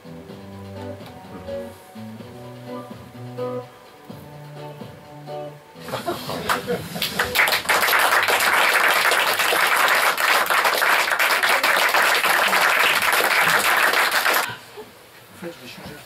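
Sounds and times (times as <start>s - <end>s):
audience applauding: 6.4s - 14.5s.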